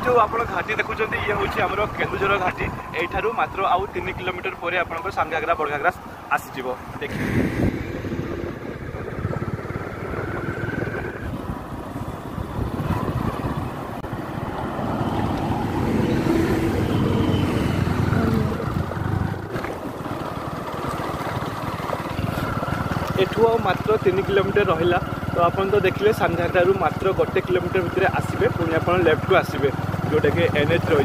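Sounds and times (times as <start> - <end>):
rushing wind: 0.0 - 23.6
road noise: 0.0 - 31.0
motorcycle engine running: 6.8 - 31.0.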